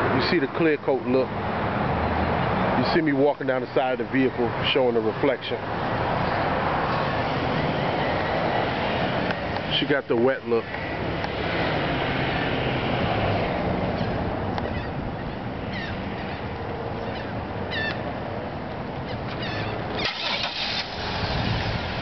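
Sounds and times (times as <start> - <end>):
outdoor background noise: 0.0 - 22.0
car engine starting: 19.4 - 22.0.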